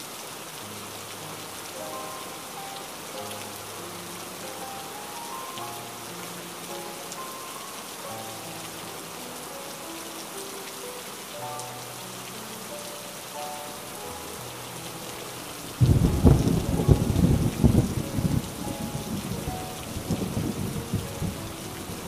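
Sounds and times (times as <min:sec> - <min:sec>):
slow music with held notes: 0:00.0 - 0:22.0
steady rain: 0:00.0 - 0:22.0
thunder clap and rumble: 0:15.8 - 0:22.0.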